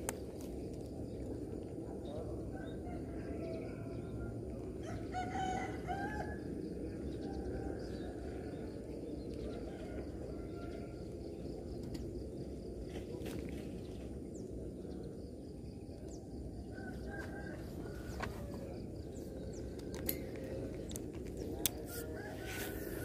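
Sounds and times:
rooster crowing: 0:02.6 - 0:06.5, 0:16.8 - 0:18.8, 0:21.9 - 0:23.0.

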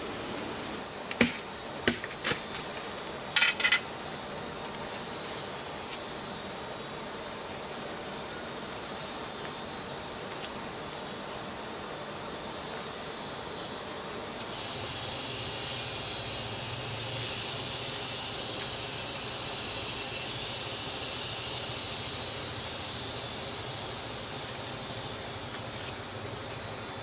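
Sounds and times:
insects droning high-pitched: 0:00.0 - 0:27.0.

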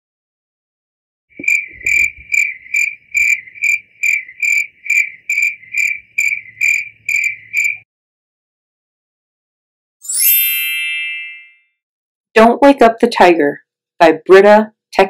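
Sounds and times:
cricket chirping: 0:01.3 - 0:07.8.

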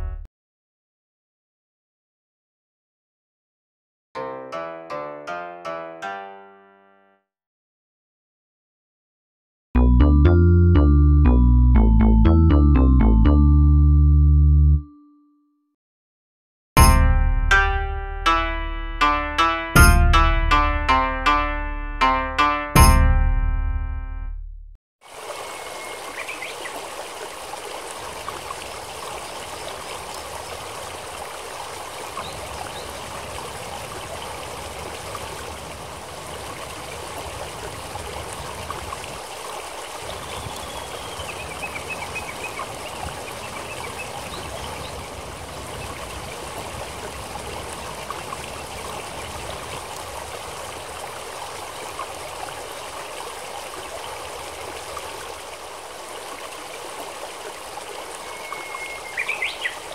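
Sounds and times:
stream running over stones: 0:25.0 - 0:59.9.

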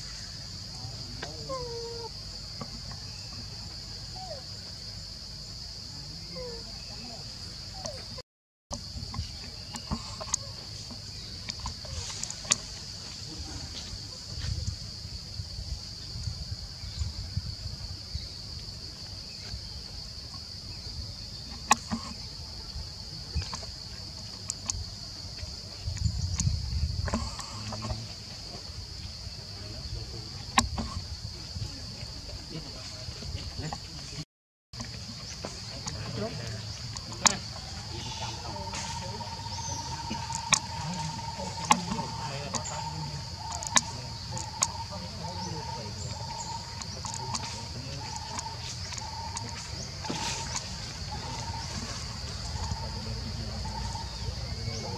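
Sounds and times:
insect drone: 0:00.0 - 0:34.2, 0:34.8 - 0:54.9
high-pitched insect drone: 0:34.8 - 0:54.9.

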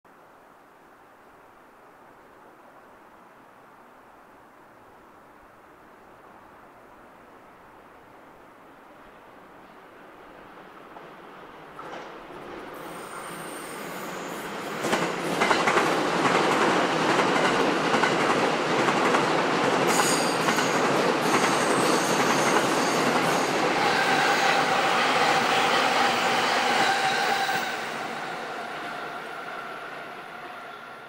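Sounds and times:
train wheels clattering on rails: 0:10.9 - 0:28.0.

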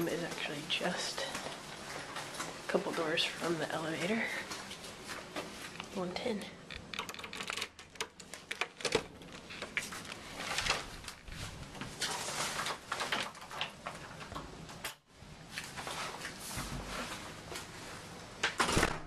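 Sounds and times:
key clicking in door lock: 0:06.7 - 0:09.1
rustling: 0:08.2 - 0:14.3.

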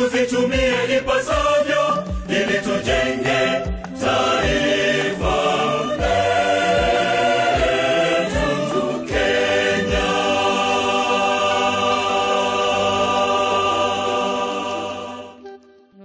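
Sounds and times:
choir-like sustained chords: 0:00.0 - 0:15.6
steady bass drum beat: 0:00.6 - 0:12.1.

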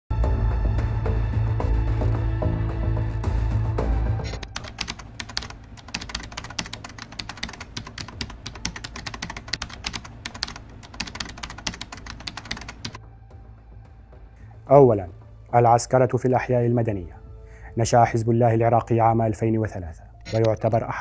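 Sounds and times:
keyboard typing clicks: 0:04.3 - 0:13.0, 0:20.2 - 0:20.8.

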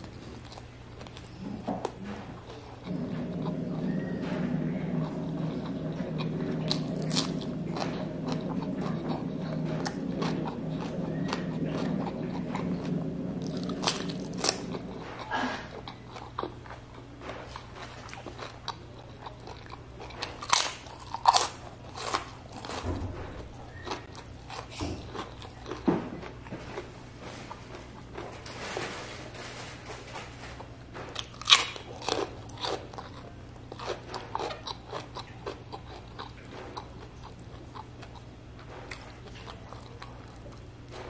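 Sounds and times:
low steady hum: 0:00.0 - 0:41.0
crunching fried chicken skin: 0:15.8 - 0:22.9, 0:31.2 - 0:38.3.

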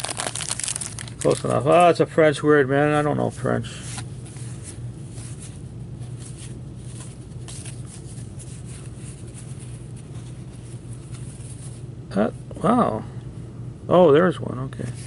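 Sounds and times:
trading cards rustling and clicking: 0:00.0 - 0:02.0, 0:03.8 - 0:11.7
steady low hum: 0:00.0 - 0:15.0.

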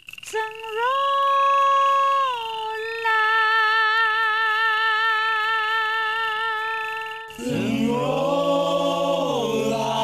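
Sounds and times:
woman singing long vibrato note: 0:00.3 - 0:08.0
men's voices singing together: 0:07.4 - 0:10.0.

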